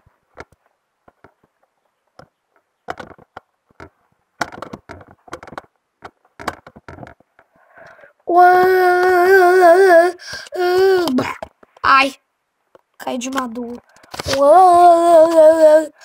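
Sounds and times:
knocking and scraping: 0.0s - 8.0s.

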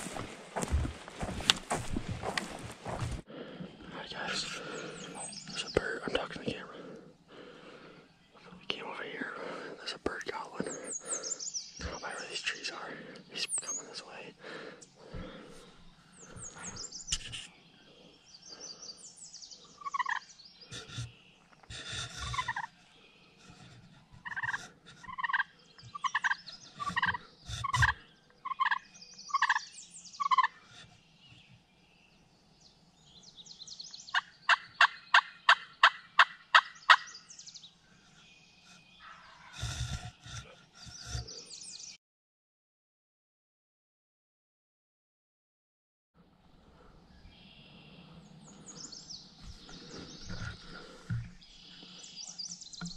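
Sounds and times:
small birds chirping: 0.0s - 42.0s, 46.6s - 52.9s
turkeys yelping: 19.8s - 20.2s, 22.2s - 22.7s, 24.2s - 29.6s, 30.2s - 30.6s, 34.5s - 37.1s.

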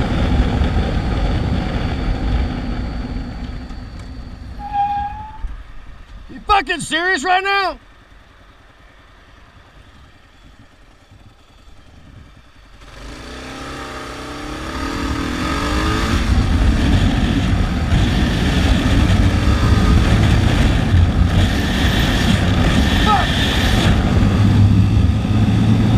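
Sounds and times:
motorcycle engine accelerating: 0.0s - 5.5s, 8.1s - 25.9s.

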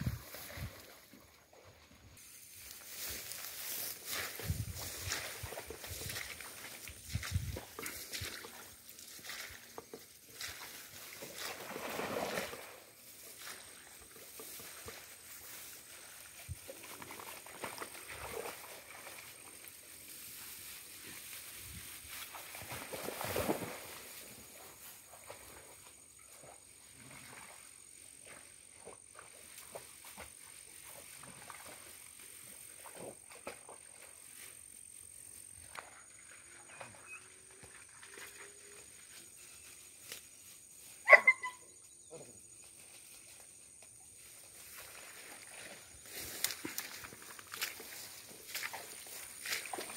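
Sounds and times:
water sloshing and splashing: 4.5s - 13.0s.

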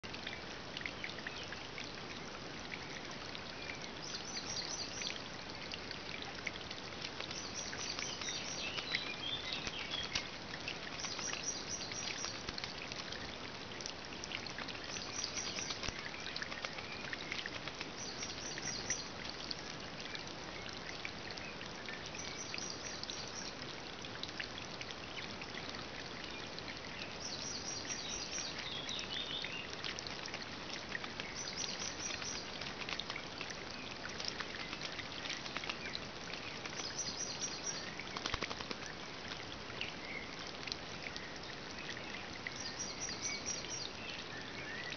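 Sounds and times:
steady background hiss: 0.1s - 44.9s
bird splashing in puddle: 37.7s - 39.0s.

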